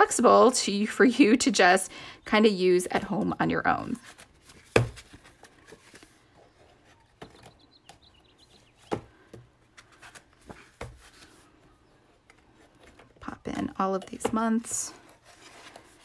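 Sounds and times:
soft paper rustling: 0:03.0 - 0:07.6, 0:13.9 - 0:16.0.

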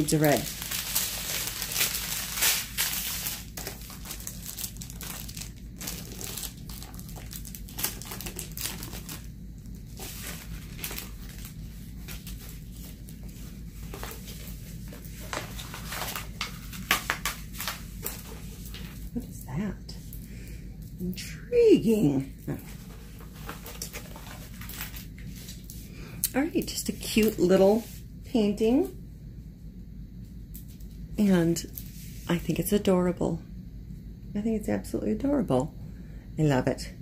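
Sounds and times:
plastic packaging crinkling: 0:00.0 - 0:19.2, 0:22.5 - 0:25.8.

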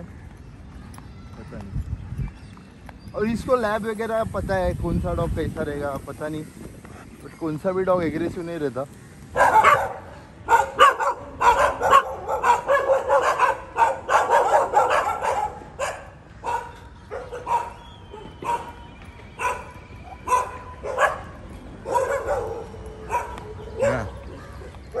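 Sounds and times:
dogs barking: 0:09.3 - 0:25.0.

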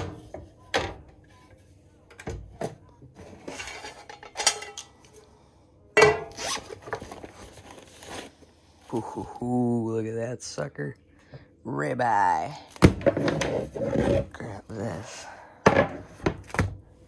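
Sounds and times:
cooler bag rustling: 0:06.3 - 0:08.4.

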